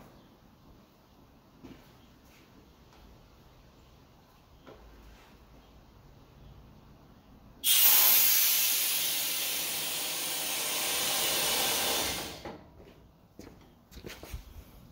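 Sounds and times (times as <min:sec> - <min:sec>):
compressed air hissing: 0:07.6 - 0:12.4.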